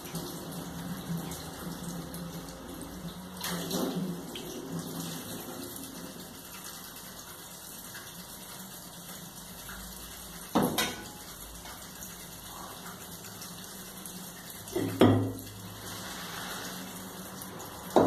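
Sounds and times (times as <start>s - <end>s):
tap running into a metal sink: 10.4s - 11.8s, 14.6s - 15.6s.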